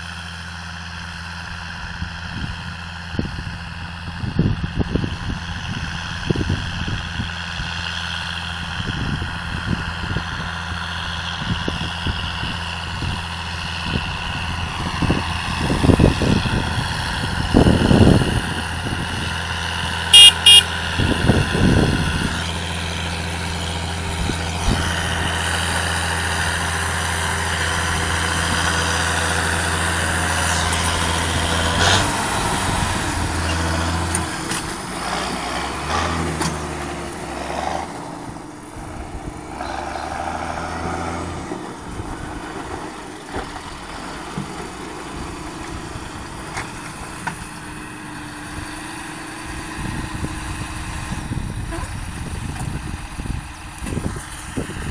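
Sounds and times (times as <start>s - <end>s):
tractor diesel engine running: 0.0s - 54.9s
wind buffeting microphone: 1.9s - 7.8s, 8.6s - 20.0s, 20.8s - 34.8s, 40.8s - 54.9s
short loud beeps: 20.1s - 20.7s.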